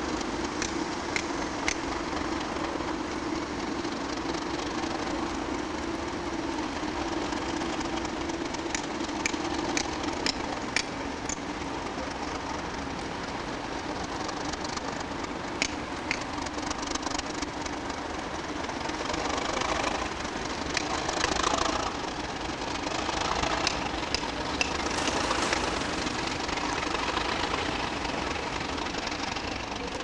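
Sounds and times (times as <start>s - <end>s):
diesel locomotive engines running: 0.0s - 30.0s
sharp clicks: 0.1s - 2.5s, 8.7s - 11.7s, 15.6s - 17.8s.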